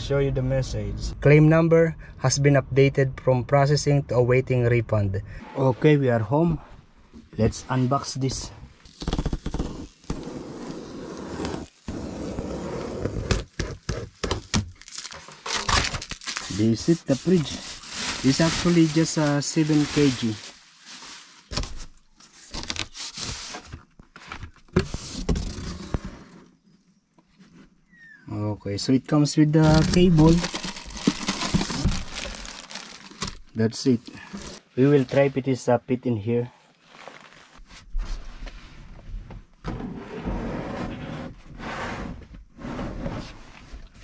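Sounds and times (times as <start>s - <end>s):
plastic casing scraping against seats: 8.9s - 14.6s, 29.6s - 33.5s
cardboard box rustling and scraping: 21.0s - 26.5s, 29.6s - 33.4s.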